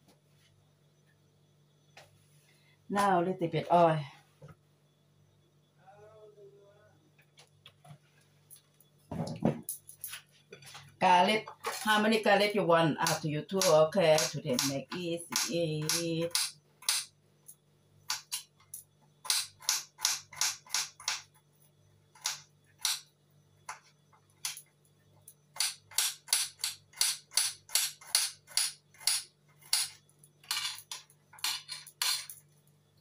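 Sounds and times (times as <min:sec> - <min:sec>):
faint low hum: 0:00.0 - 0:19.3.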